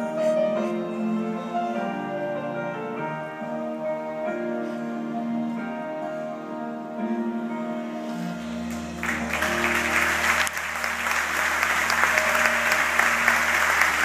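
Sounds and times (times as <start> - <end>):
live song held notes: 0.0 - 14.0
audience applause: 8.7 - 14.0.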